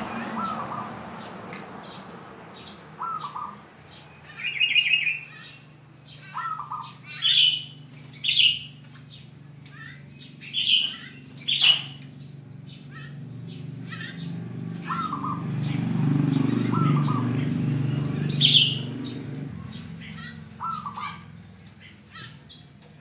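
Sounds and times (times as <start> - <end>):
dove cooing: 0.0 - 1.0, 3.0 - 3.6, 6.2 - 7.7, 13.8 - 21.3
high bird calls: 0.0 - 23.0.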